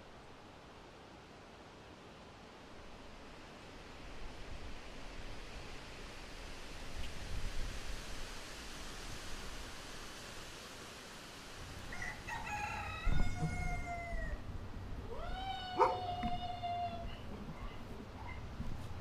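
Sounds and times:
steady hiss: 0:00.0 - 0:15.2
rooster crowing: 0:11.8 - 0:14.5, 0:15.1 - 0:17.0.

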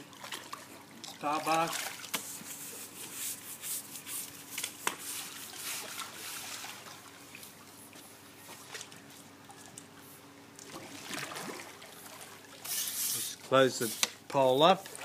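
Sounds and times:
water splashing and trickling: 0:00.0 - 0:03.0, 0:04.5 - 0:13.9, 0:14.5 - 0:15.0
brush scrubbing tile: 0:02.2 - 0:06.6, 0:12.6 - 0:14.7.

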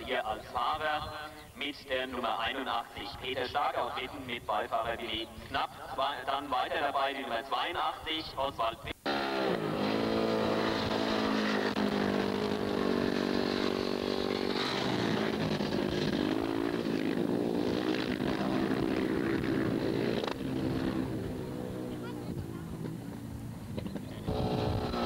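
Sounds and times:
motorcycle engines at high revs: 0:09.0 - 0:25.0.

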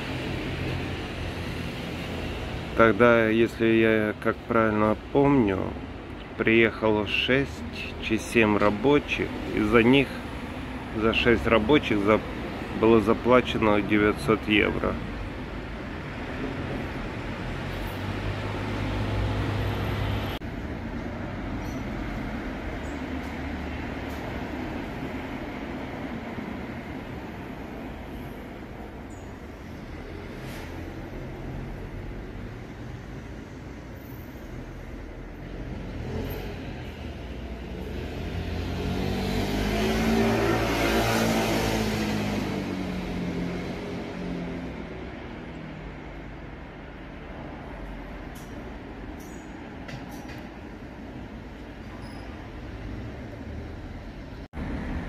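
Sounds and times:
vehicle engine passing by: 0:17.0 - 0:20.4, 0:35.5 - 0:46.0.

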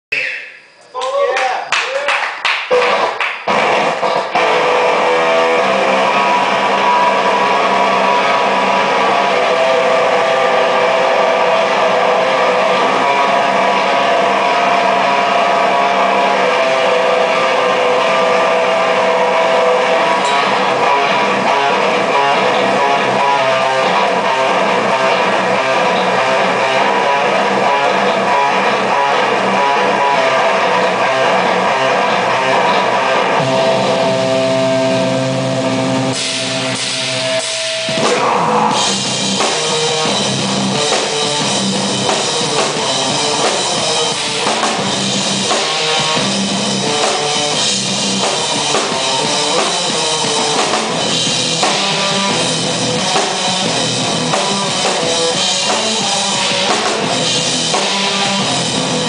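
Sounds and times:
rock band playing: 0:02.3 - 0:59.0
drum hits: 0:33.4 - 0:59.0.

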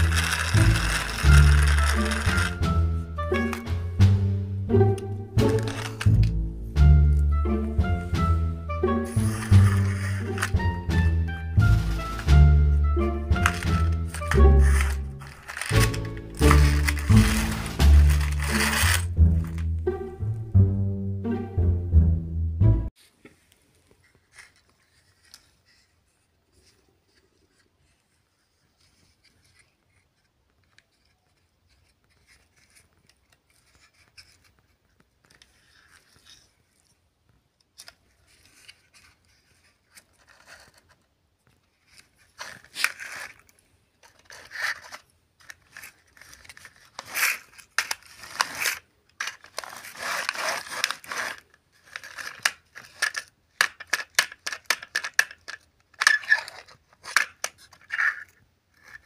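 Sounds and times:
plastic toy scraping and rattling: 0:00.0 - 0:02.8, 0:05.4 - 0:06.4, 0:09.0 - 0:10.7, 0:11.6 - 0:12.4, 0:13.3 - 0:19.7, 0:24.0 - 0:36.9, 0:37.8 - 0:59.0.

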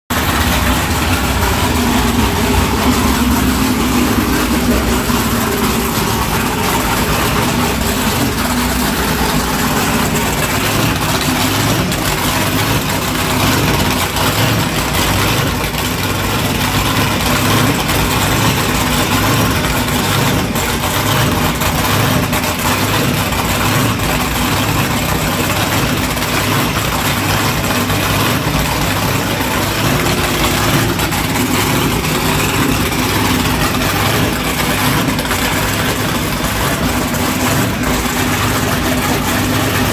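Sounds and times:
boat engine idling: 0:00.0 - 0:39.9.

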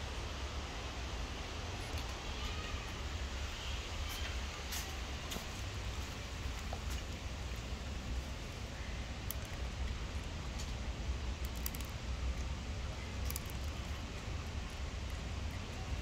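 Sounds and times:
cat chewing dry kibble: 0:09.2 - 0:10.8, 0:11.4 - 0:16.0.

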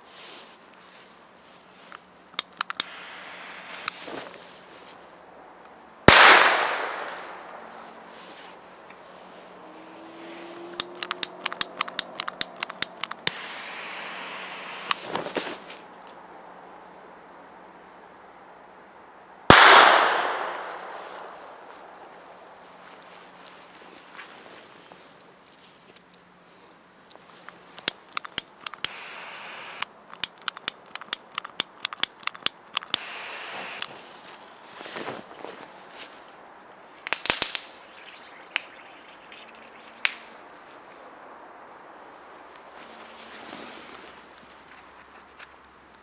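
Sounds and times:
lighter clicking: 0:02.4 - 0:02.9, 0:10.7 - 0:13.4, 0:27.8 - 0:29.0, 0:29.7 - 0:33.1
fuse hissing: 0:02.4 - 0:04.1, 0:12.4 - 0:15.3, 0:27.9 - 0:29.8, 0:31.2 - 0:34.1
flame hissing: 0:02.8 - 0:04.3, 0:12.9 - 0:15.5, 0:32.9 - 0:34.1.

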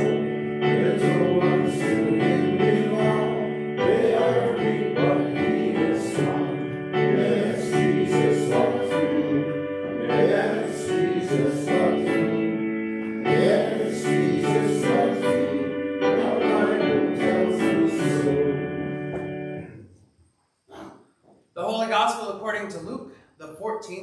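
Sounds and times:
congregation singing: 0:00.0 - 0:19.8
keyboard accompaniment: 0:00.0 - 0:19.8.

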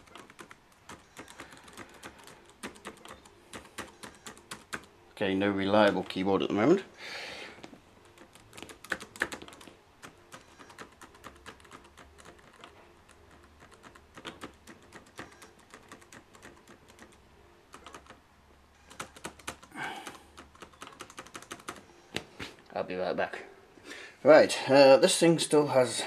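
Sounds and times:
laptop keyboard typing clicks: 0:00.0 - 0:04.9, 0:08.0 - 0:18.2, 0:18.8 - 0:22.3.

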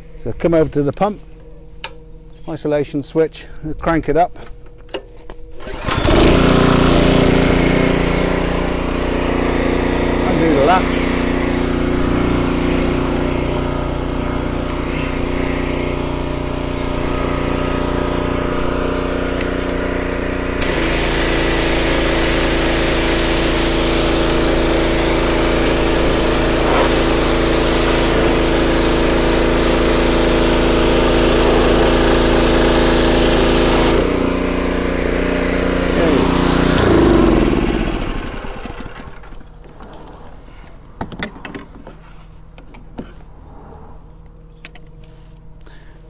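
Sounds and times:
petrol engine running: 0:05.6 - 0:39.8
hissing water jet: 0:14.6 - 0:16.2, 0:20.5 - 0:34.2.

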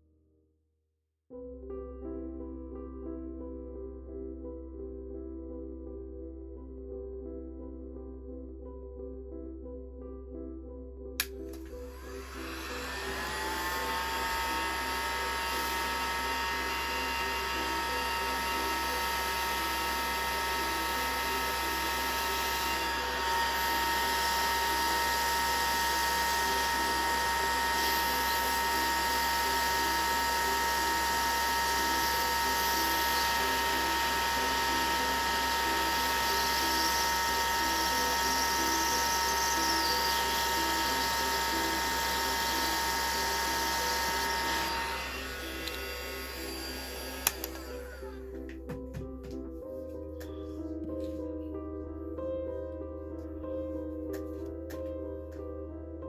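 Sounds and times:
heat gun fan whine: 0:11.2 - 0:48.2.

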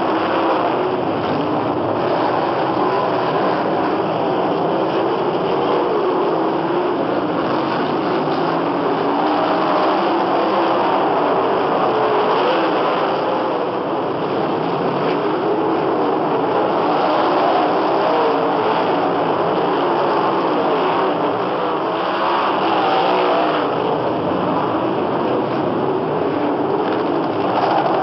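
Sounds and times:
sprint car engines racing: 0:00.0 - 0:28.0.

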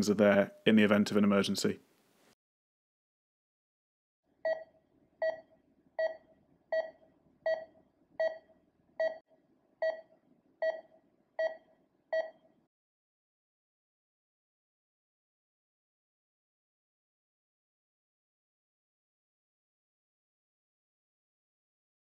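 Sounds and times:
patient monitor pulse beep: 0:04.4 - 0:09.2, 0:09.8 - 0:12.5.

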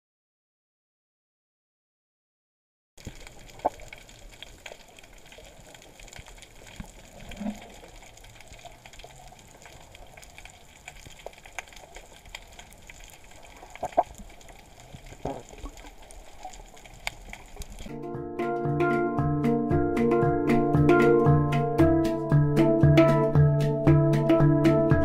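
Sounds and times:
crackle of small clicks: 0:03.0 - 0:17.9.

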